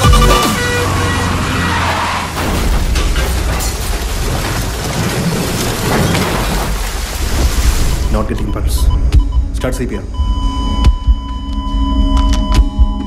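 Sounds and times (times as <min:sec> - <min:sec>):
heavy rain pouring: 0:00.0 - 0:08.4.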